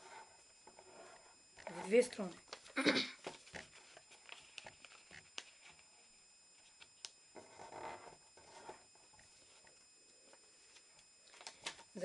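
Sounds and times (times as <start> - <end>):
paper rustling and crinkling: 1.6 - 6.0.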